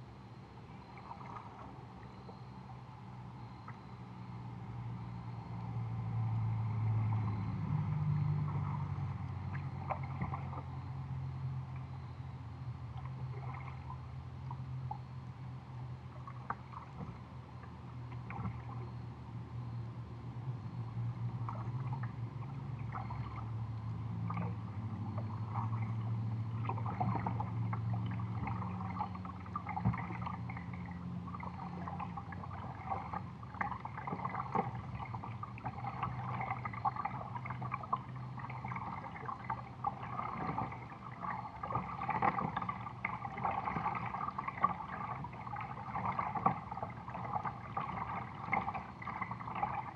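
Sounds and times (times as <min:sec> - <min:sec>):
water lapping against plastic hull: 0:00.0 - 0:04.2, 0:06.1 - 0:19.6, 0:21.1 - 0:49.9
low steady hum: 0:00.0 - 0:49.9
small splashes: 0:00.8 - 0:02.5, 0:06.6 - 0:10.8, 0:12.9 - 0:15.0, 0:16.1 - 0:19.0, 0:21.4 - 0:49.9.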